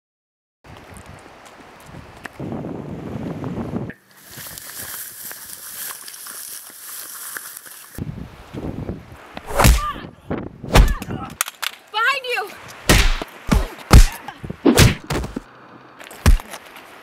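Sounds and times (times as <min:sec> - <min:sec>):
punch impacts: 0:09.5 - 0:10.0, 0:10.7 - 0:11.1, 0:12.9 - 0:15.4, 0:16.2 - 0:16.5
person yelling: 0:09.7 - 0:10.1.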